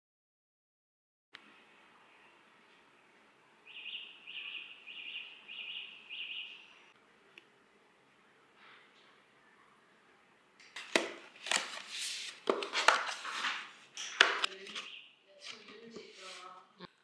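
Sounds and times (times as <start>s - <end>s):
faint background noise: 1.4s - 17.0s
bird chirping: 3.6s - 7.0s, 14.5s - 15.4s.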